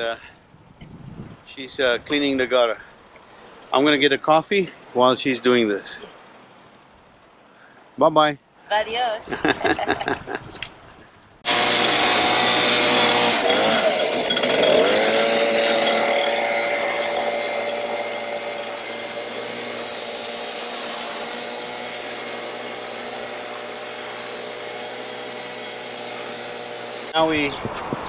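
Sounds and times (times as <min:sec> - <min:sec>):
leaf blower running: 0:11.5 - 0:27.2.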